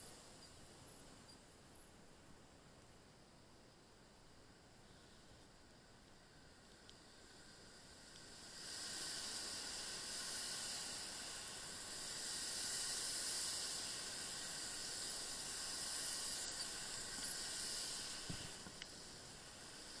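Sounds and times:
tyres hissing on wet asphalt: 0:04.7 - 0:20.0.

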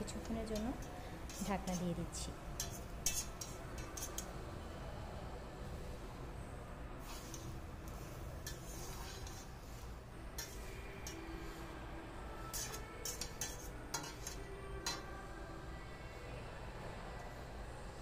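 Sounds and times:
spatula scraping and knocking metal pot: 0:00.4 - 0:04.3, 0:08.4 - 0:09.7, 0:10.3 - 0:11.4, 0:12.5 - 0:15.1.

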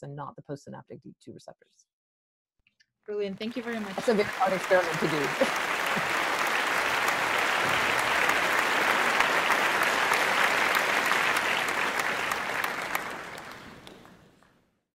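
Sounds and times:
crowd applauding: 0:03.4 - 0:14.5.

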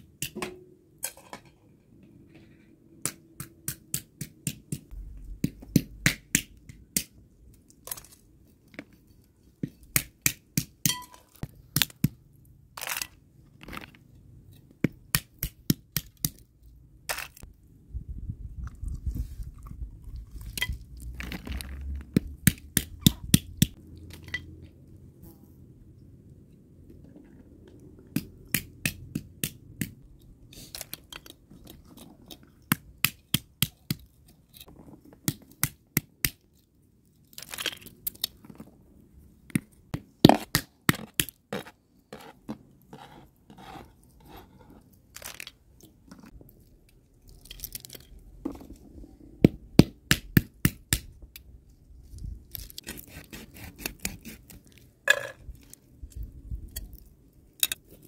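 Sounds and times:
knife scraping fish scales: 0:52.8 - 0:54.7.

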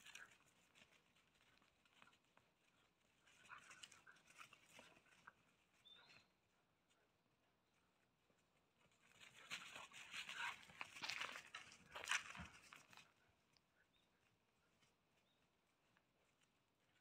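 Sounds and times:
puppies scuffling and snarling: 0:00.0 - 0:06.2, 0:08.8 - 0:13.1.

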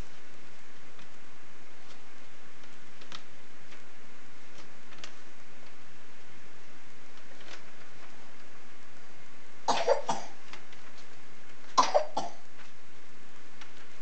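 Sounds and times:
person coughing: 0:09.7 - 0:10.4, 0:11.8 - 0:12.4.

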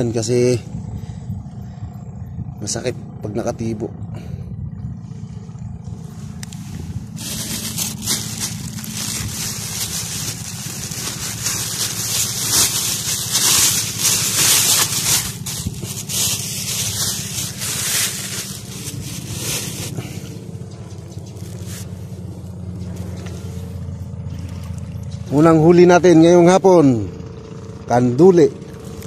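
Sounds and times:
low motor hum: 0:00.0 - 0:29.0.

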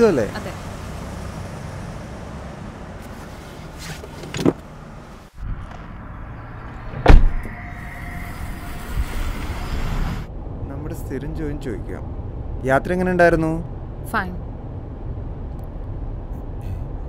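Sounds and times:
car moving with faint whine: 0:00.0 - 0:17.0
car door shutting: 0:06.9 - 0:07.6.

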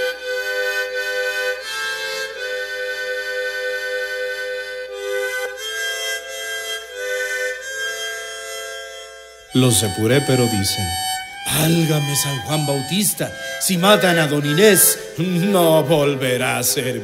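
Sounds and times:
mariachi ensemble playing: 0:08.5 - 0:17.0.

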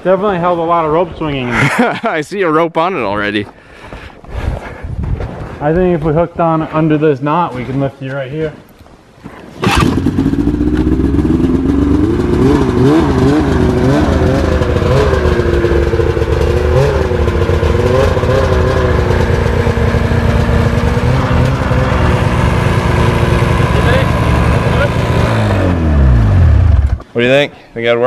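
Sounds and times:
snowmobile engine revving: 0:09.6 - 0:27.0.

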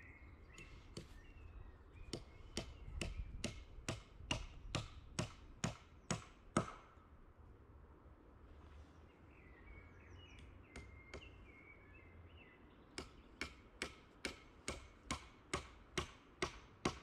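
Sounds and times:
faint bird chirps: 0:00.0 - 0:03.4
tool knocking on wood: 0:02.1 - 0:06.8.

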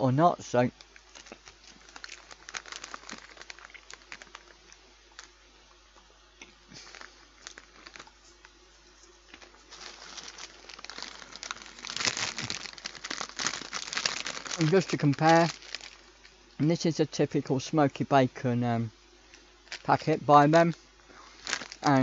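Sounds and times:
crisp packet crinkling: 0:00.8 - 0:05.4, 0:06.7 - 0:08.5, 0:09.3 - 0:16.4, 0:19.6 - 0:22.0
crisps being chewed: 0:00.8 - 0:05.4, 0:06.4 - 0:08.6, 0:09.2 - 0:16.4, 0:21.4 - 0:22.0.

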